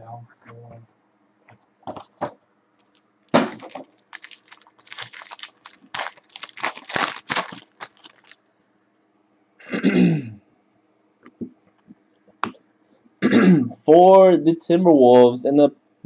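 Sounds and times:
foil wrapper crinkling and tearing: 0:02.9 - 0:08.4.

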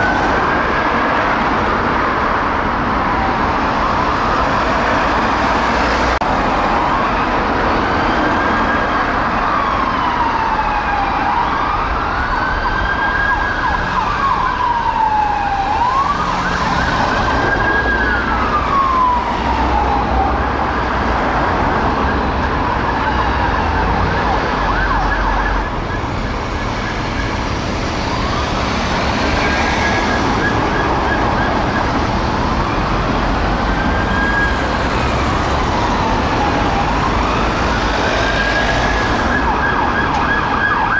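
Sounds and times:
police sirens wailing: 0:00.0 - 0:40.9
road traffic noise: 0:00.0 - 0:40.9.

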